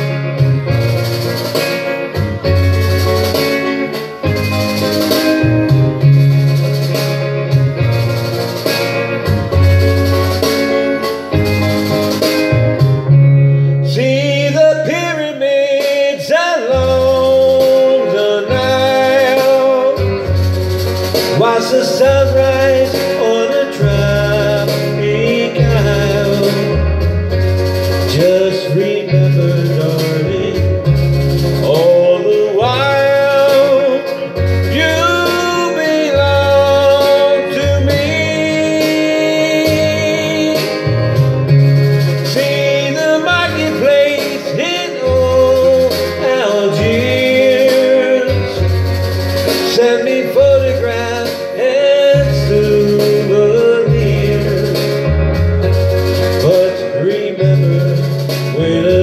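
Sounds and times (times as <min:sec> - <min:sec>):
guitar and bass backing music: 0:00.0 - 0:59.0
man singing country song: 0:13.6 - 0:20.4, 0:21.3 - 0:27.3, 0:28.0 - 0:41.2, 0:42.2 - 0:48.9, 0:49.5 - 0:55.3, 0:56.3 - 0:59.0.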